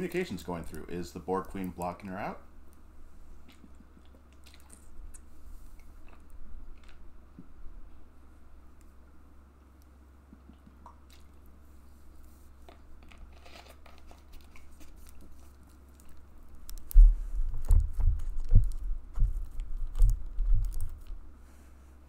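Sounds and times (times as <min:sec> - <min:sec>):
plastic water bottle crinkling: 0:12.6 - 0:16.9.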